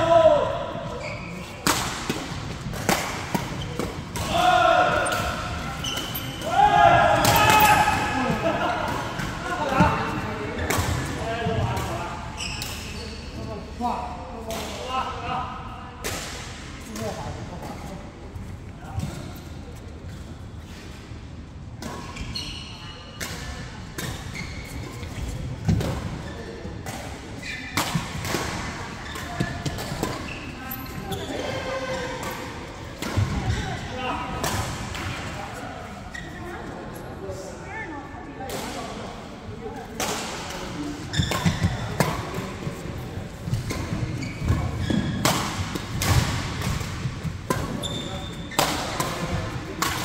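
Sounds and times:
sneakers squeaking on court floor: 0.8s - 2.6s, 5.0s - 6.5s, 12.3s - 13.5s, 22.1s - 23.2s, 24.3s - 26.6s, 29.0s - 31.6s, 41.0s - 49.2s
racket hitting shuttlecock: 43.5s - 50.0s.

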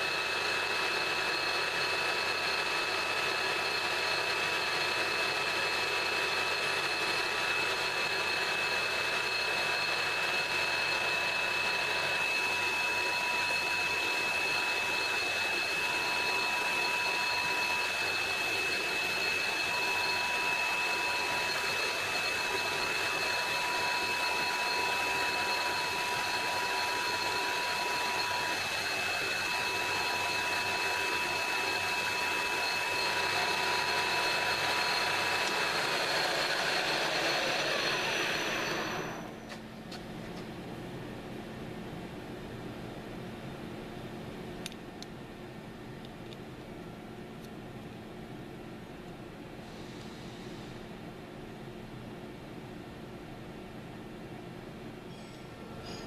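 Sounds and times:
metal lathe whining: 0.0s - 39.6s.

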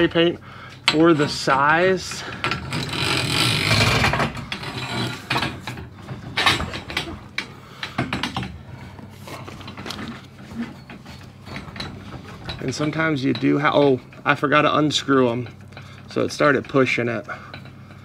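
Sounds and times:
spring scraping on metal shaft: 0.8s - 7.6s.

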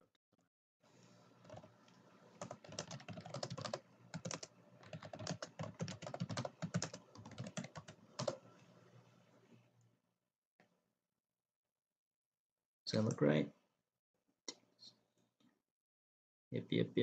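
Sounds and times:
computer keyboard typing: 1.4s - 1.8s, 2.4s - 8.4s.

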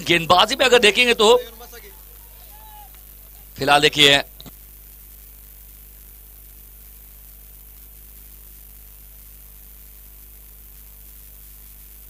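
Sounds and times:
electrical hum with hiss: 0.0s - 12.0s.

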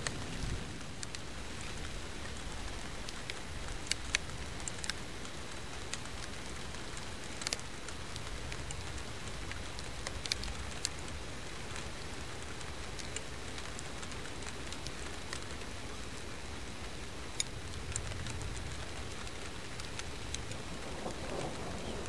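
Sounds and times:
sharp ticks: 2.6s - 15.8s, 16.8s - 22.0s
wind noise on microphone: 17.5s - 22.0s.

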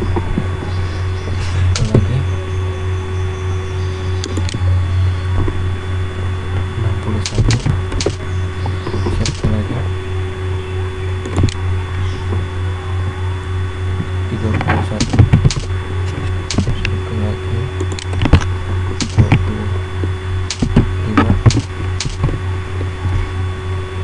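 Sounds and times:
low hum: 0.0s - 24.0s
keyboard keystrokes: 7.2s - 8.2s, 9.0s - 9.6s, 11.2s - 11.6s, 14.9s - 15.7s, 16.5s - 17.0s, 17.8s - 19.5s, 20.5s - 22.4s
mouse clicks: 20.5s - 22.3s.

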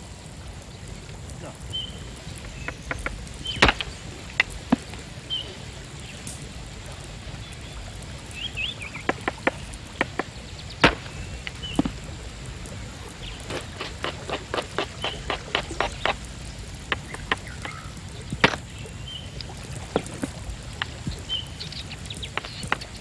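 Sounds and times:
bird chirps: 1.7s - 6.2s, 16.9s - 19.4s, 20.8s - 23.0s
sharp knocks: 2.4s - 5.0s, 9.1s - 12.0s, 16.9s - 18.6s.

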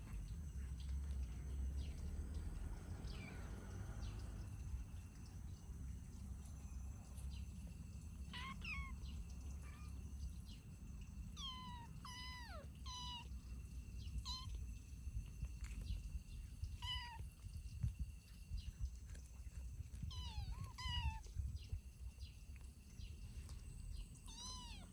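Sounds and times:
kittens mewing: 8.3s - 10.0s, 11.4s - 13.3s, 20.1s - 21.3s, 24.3s - 24.9s.

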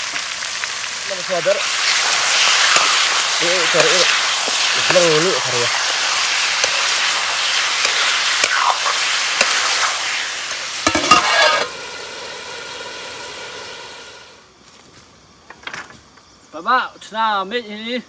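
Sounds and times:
chicken sizzling in hot oil: 0.0s - 14.4s
metal ladle scraping and knocking wok: 10.8s - 11.7s.

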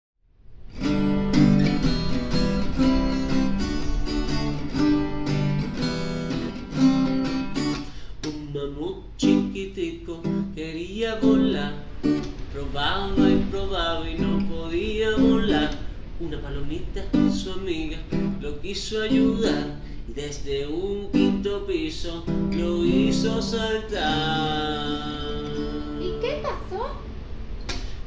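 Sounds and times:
acoustic guitar strumming: 0.5s - 27.1s
man singing: 8.3s - 26.2s.

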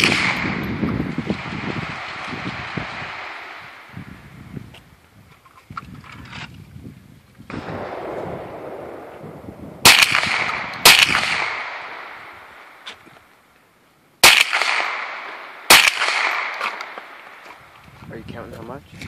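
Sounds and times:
rifle shots echoing: 0.0s - 4.0s, 7.5s - 12.9s, 14.2s - 17.6s.

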